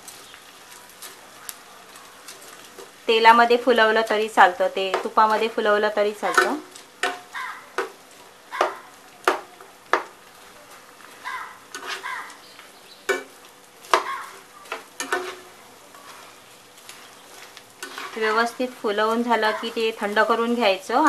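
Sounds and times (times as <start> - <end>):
frying sizzle: 0.0 - 21.0
spoon stirring in pan: 0.1 - 3.0, 3.8 - 20.6.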